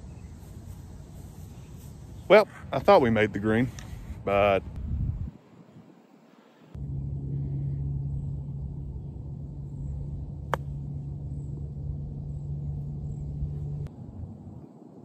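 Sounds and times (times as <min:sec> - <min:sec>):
steady low hum: 0:00.0 - 0:15.0
golf club striking ball: 0:10.3 - 0:13.8.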